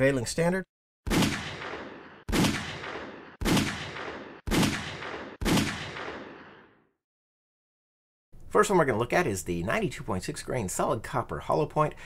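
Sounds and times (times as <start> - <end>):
pistol shots with echo: 1.1 - 6.7.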